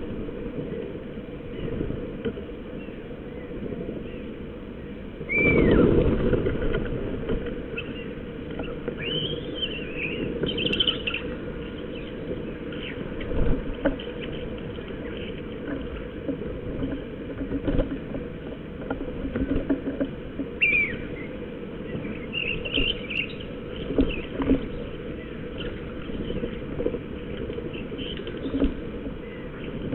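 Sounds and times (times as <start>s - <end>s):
rush of noise: 0.0s - 29.9s
magpies calling: 2.7s - 5.9s, 7.7s - 13.4s, 20.5s - 29.9s.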